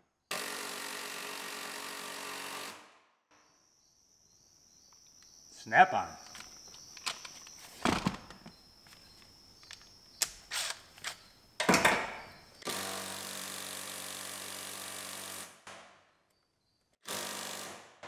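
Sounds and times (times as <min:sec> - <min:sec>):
impact driver running: 0:00.3 - 0:02.8, 0:12.6 - 0:15.6, 0:17.0 - 0:18.0.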